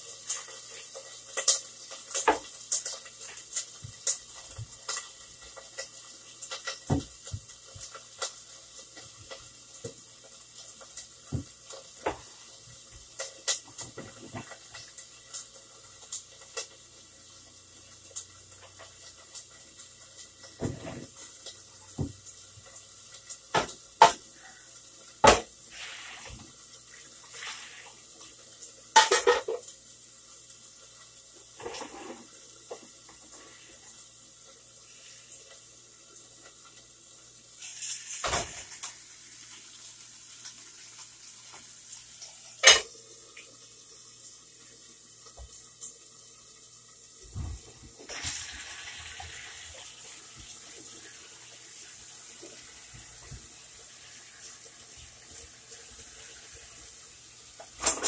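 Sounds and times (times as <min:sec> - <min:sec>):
cookware knocking and clinking: 0:29.0 - 0:29.6.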